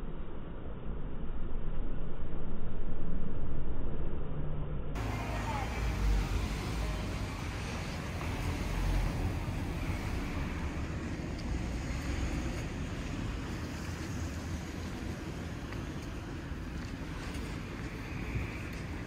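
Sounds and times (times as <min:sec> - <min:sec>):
road traffic rumble: 0:05.0 - 0:19.0.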